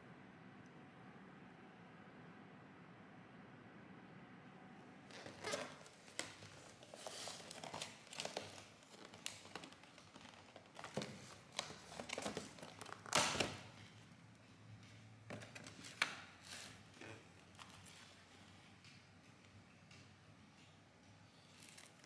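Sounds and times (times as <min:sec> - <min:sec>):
crinkling and rustling: 0:05.1 - 0:14.0, 0:21.4 - 0:22.0.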